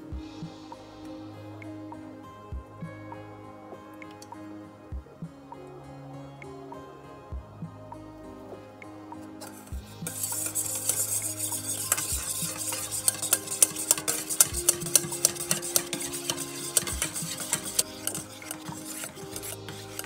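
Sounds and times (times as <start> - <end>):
whisk beating cream in metal bowl: 10.0 - 20.0.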